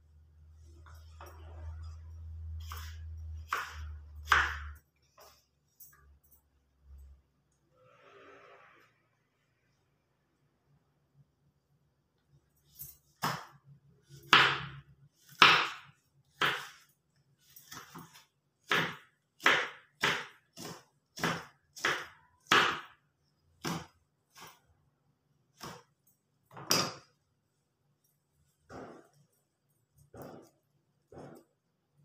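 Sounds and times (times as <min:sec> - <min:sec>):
knife chopping on wooden board: 0:02.6 - 0:05.3, 0:13.2 - 0:13.6, 0:14.2 - 0:16.8, 0:17.5 - 0:23.0, 0:23.6 - 0:24.5, 0:30.1 - 0:31.5.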